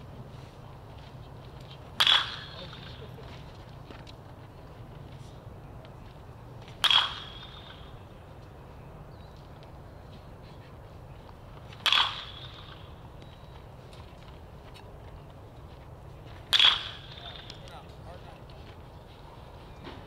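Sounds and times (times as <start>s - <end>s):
bat striking ball: 2.0s - 3.0s, 6.7s - 8.0s, 11.8s - 13.0s, 16.5s - 17.7s.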